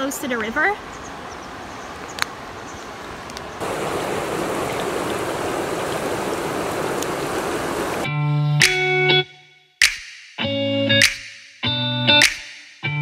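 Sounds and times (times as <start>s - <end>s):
river water flowing: 0.8s - 8.1s.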